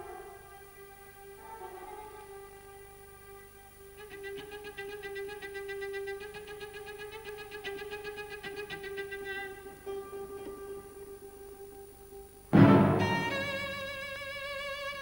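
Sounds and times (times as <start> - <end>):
cello and orchestral strings: 12.6 - 14.3.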